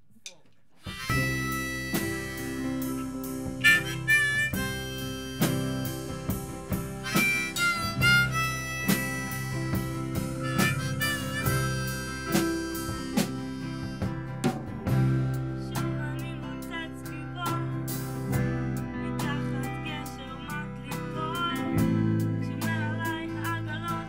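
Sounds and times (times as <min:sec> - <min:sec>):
harmonica with bent notes: 0:00.8 - 0:17.1
rock band playing: 0:00.8 - 0:24.0.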